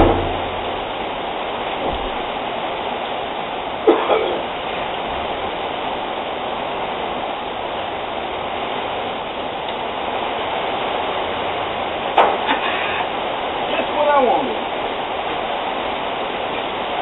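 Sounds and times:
sharp knock: 0.0s - 1.0s
steady rushing noise: 0.0s - 3.9s.

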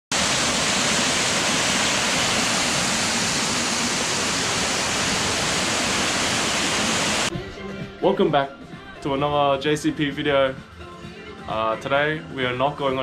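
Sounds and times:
small waterfall rushing: 0.1s - 7.3s.

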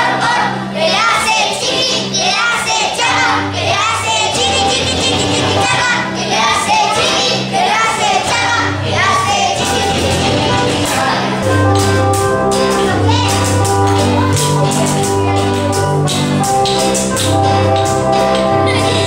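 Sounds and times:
steady bass line: 3.1s - 19.0s
person singing: 4.2s - 7.1s, 8.9s - 11.9s.

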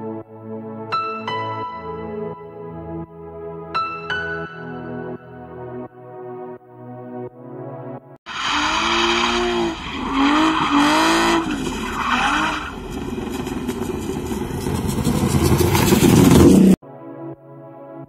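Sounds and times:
car engine revving: 8.3s - 16.8s
car accelerating past: 8.4s - 16.8s.

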